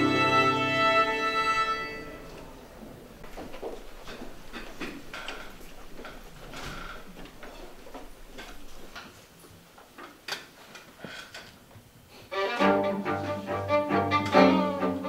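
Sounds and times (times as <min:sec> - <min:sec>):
footsteps on stage: 0:03.2 - 0:10.0.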